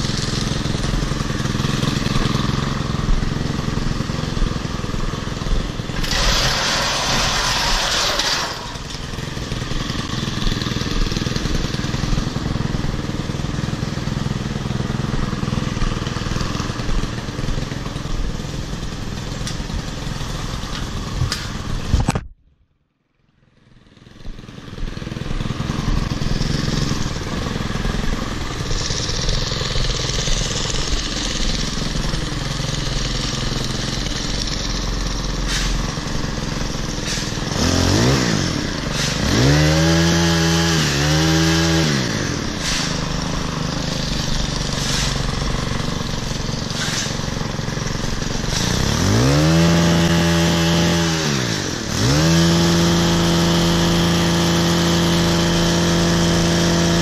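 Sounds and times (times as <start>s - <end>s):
hedge trimmer engine running: 0.0s - 22.1s, 23.5s - 57.0s
loud hiss: 6.0s - 8.9s, 34.9s - 37.5s, 42.4s - 48.9s.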